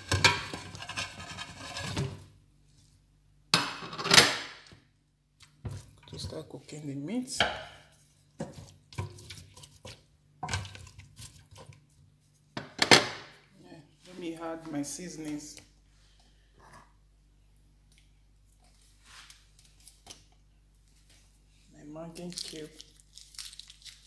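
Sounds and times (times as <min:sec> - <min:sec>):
wooden spoon scraping pot: 0:00.0 - 0:02.3, 0:05.6 - 0:06.7, 0:07.3 - 0:12.5.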